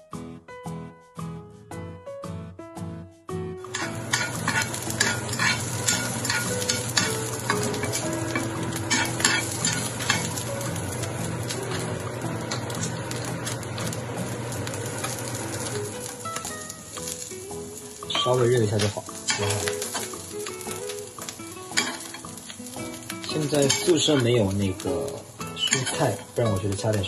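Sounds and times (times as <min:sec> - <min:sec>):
food sizzling in frying pan: 0:03.6 - 0:27.0
utensil scraping pan: 0:03.7 - 0:10.4, 0:25.6 - 0:26.4
utensil clicking against pan: 0:03.7 - 0:11.1, 0:18.1 - 0:25.0, 0:25.6 - 0:27.0.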